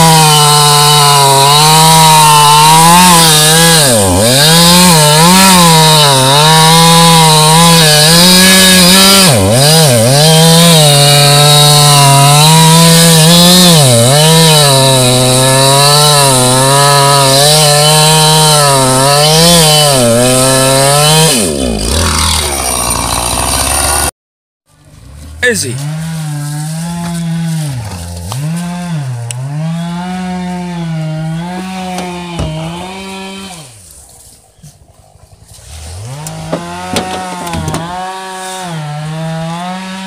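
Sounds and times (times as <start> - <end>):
chainsaw cutting log: 0.0 - 24.1, 25.4 - 40.0.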